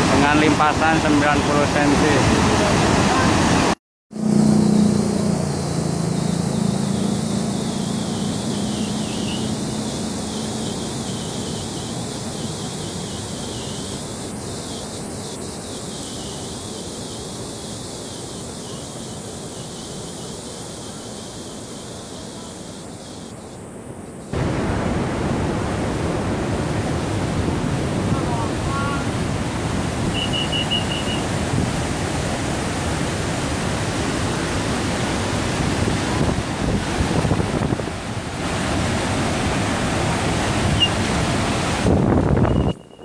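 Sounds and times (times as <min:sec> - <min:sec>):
water rushing through sluice gate: 0:00.0 - 0:03.8, 0:24.4 - 0:42.7
wind: 0:00.0 - 0:43.0.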